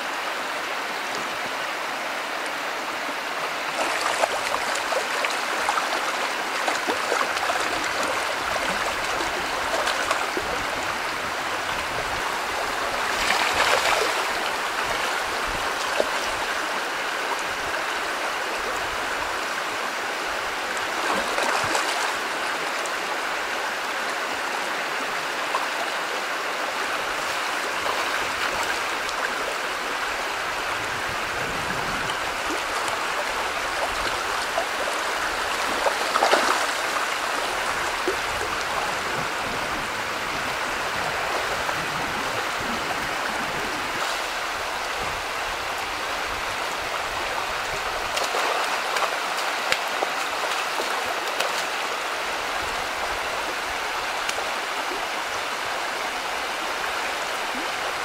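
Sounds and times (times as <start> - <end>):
stream rushing and gurgling: 0.0 - 58.0
fish splashing: 3.7 - 10.3, 32.5 - 38.2.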